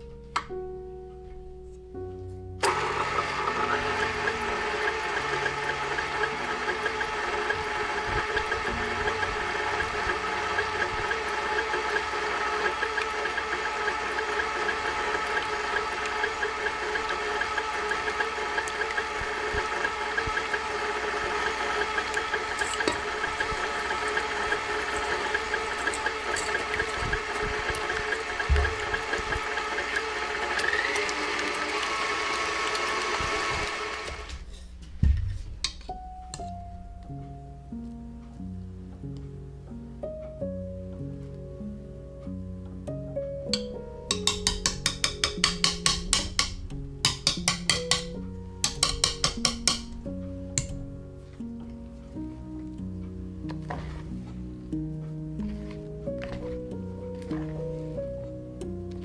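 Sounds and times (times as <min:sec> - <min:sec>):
stand mixer motor whining: 0:02.6 - 0:34.5, 0:43.5 - 0:50.9.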